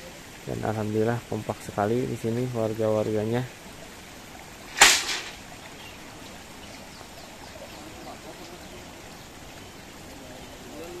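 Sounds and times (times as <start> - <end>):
stream trickling: 0.0 - 11.0
sharp knock: 4.7 - 5.4.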